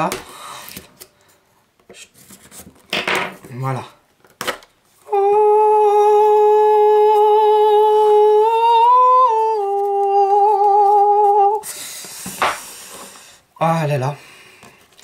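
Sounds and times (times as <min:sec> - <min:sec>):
person humming a long note: 0:05.0 - 0:11.7.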